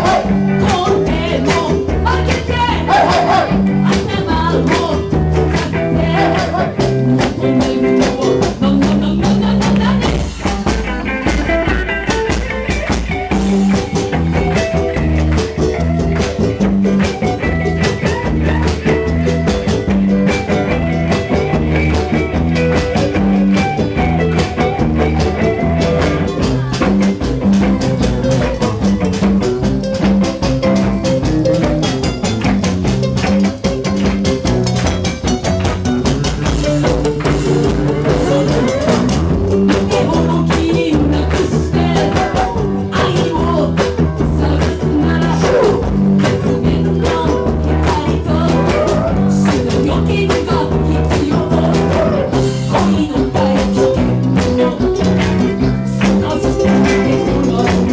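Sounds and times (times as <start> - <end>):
electric bass line: 0.0 - 57.9
live band playing: 0.0 - 57.9.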